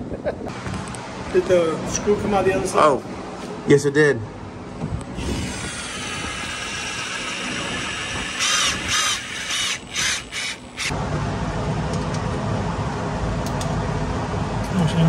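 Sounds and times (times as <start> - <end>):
power drill driving screw: 5.2 - 10.9.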